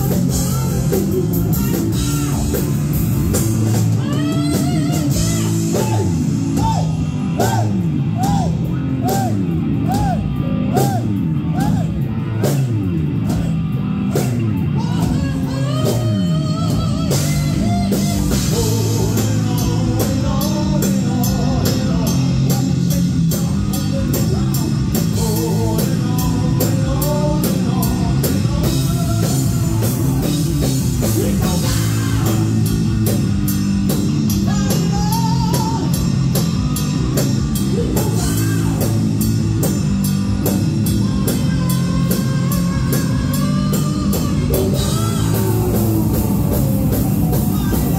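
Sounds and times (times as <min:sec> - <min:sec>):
bending lead guitar line: 0:00.0 - 0:47.9
fast drumming: 0:00.0 - 0:47.9
heavy metal band playing: 0:00.0 - 0:47.9.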